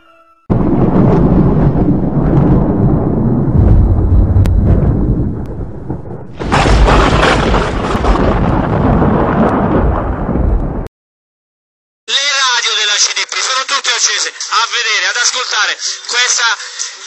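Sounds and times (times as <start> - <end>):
loud bassy rumbling: 0.5 - 10.8.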